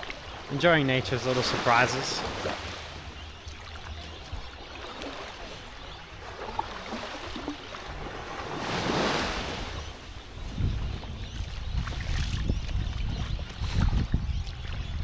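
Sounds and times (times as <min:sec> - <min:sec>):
waves lapping on sandy shore: 0:00.0 - 0:15.0
wind rumbling on microphone: 0:06.2 - 0:15.0.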